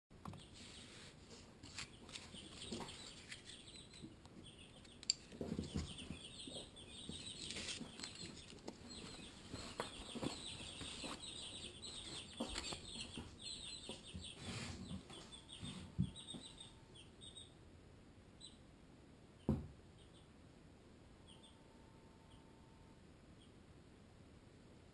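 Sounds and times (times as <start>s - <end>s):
chicks peeping: 0.2s - 17.6s, 18.4s - 18.7s, 19.3s - 20.4s, 21.2s - 21.6s.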